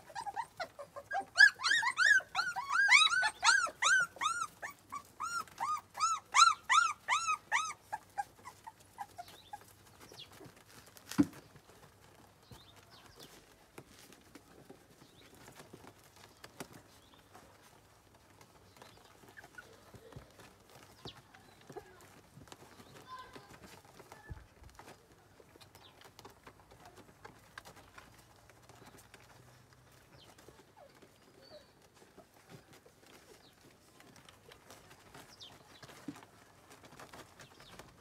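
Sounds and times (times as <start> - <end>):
puppy whimpering: 0.0 - 9.8.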